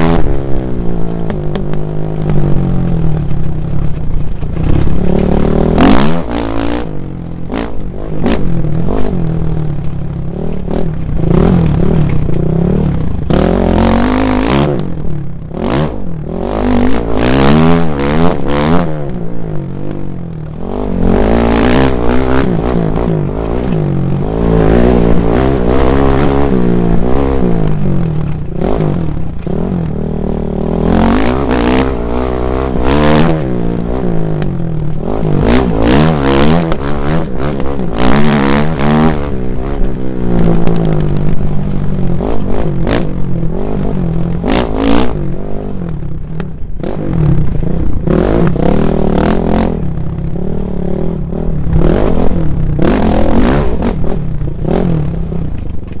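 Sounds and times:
dirt bike engine revving: 0:00.0 - 0:56.0
wind noise: 0:00.0 - 0:56.0.

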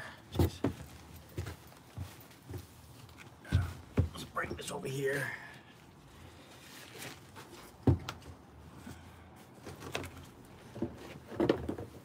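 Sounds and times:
light knocks and clunks: 0:07.8 - 0:08.3.

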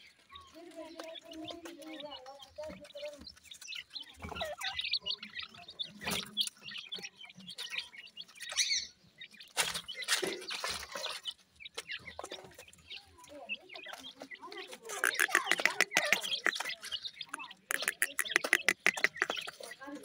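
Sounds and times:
chicks chirping: 0:00.0 - 0:20.0
pecking among gravel: 0:00.1 - 0:20.0.

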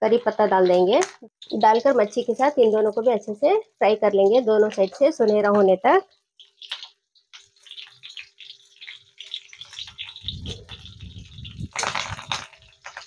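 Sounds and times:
fish sizzling in hot oil: 0:00.0 - 0:13.0
oil popping: 0:04.6 - 0:13.0
low rumbling: 0:10.2 - 0:12.3.

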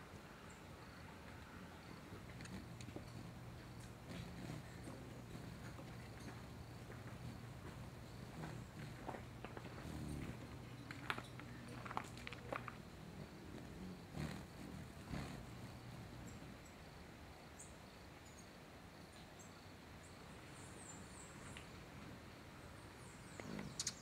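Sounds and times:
bird chirps and twitters: 0:23.4 - 0:24.0.

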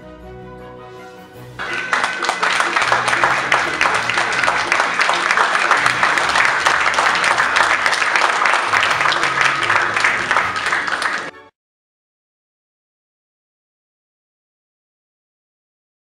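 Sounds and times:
audience applauding: 0:01.6 - 0:11.5.

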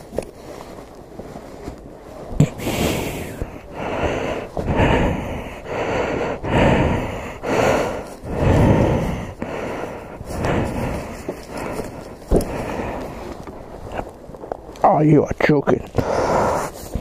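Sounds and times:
person breathing heavily: 0:02.4 - 0:14.2, 0:15.8 - 0:17.0.

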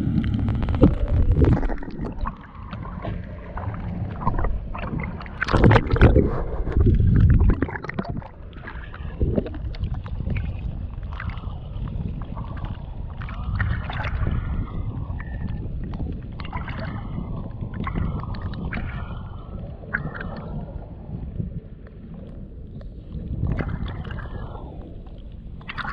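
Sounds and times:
water sloshing and splashing: 0:00.0 - 0:21.4, 0:22.0 - 0:25.9
bubbly crackles: 0:00.0 - 0:25.9
muffled low rumble: 0:00.0 - 0:25.9.

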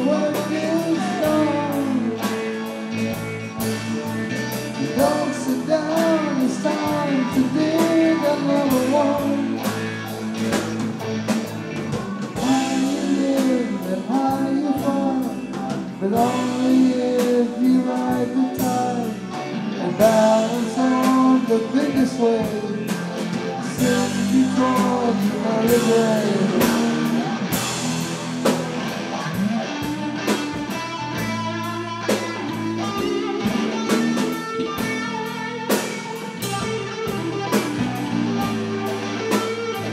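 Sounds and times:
person singing: 0:00.0 - 0:02.4, 0:04.7 - 0:10.8, 0:12.2 - 0:27.6
drum kit: 0:00.0 - 0:39.9
electric guitars: 0:00.0 - 0:39.9.

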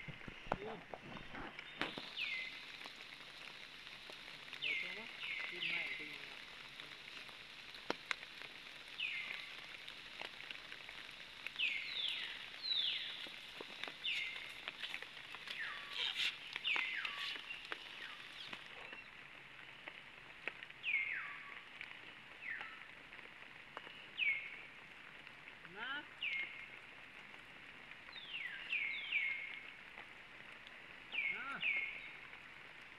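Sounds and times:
bird calling: 0:15.5 - 0:19.2.

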